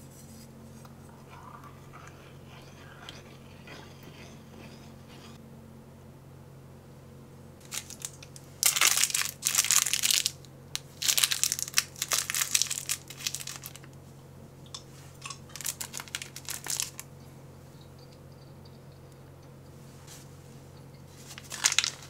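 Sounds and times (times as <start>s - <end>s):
food packaging crinkling: 7.6s - 13.9s, 15.2s - 17.1s, 21.2s - 22.0s.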